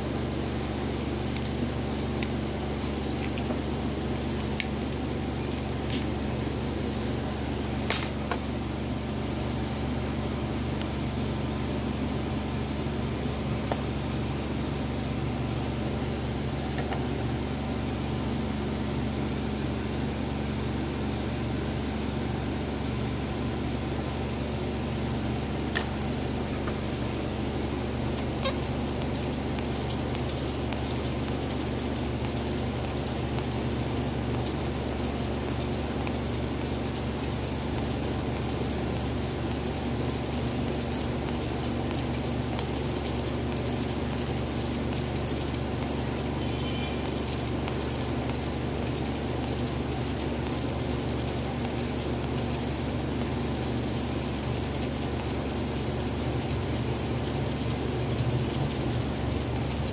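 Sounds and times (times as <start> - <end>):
stick scratching on speaker cone: 28.2 - 59.9.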